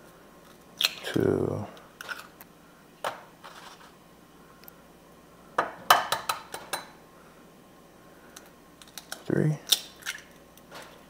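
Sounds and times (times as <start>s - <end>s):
eggs cracked on bowl rim: 8.8s - 10.4s.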